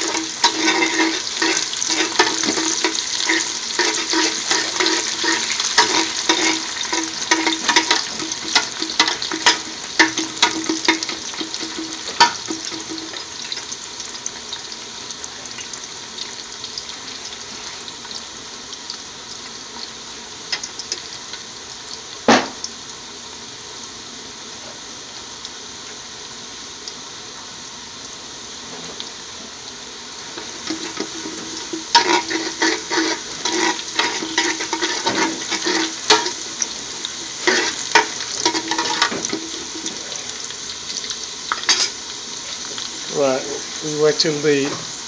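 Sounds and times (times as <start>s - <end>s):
metal spoon scraping a pot: 0.0s - 13.2s, 30.4s - 36.7s, 37.4s - 40.1s
garlic sizzling in hot oil: 0.0s - 45.0s
sharp knock: 22.3s - 22.6s.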